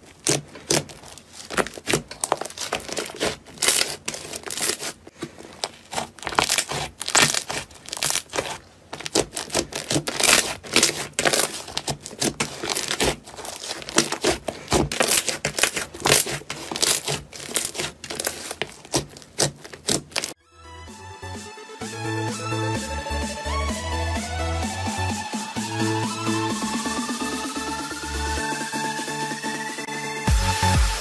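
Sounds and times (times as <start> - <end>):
slime crackling and popping: 0.0 - 20.4.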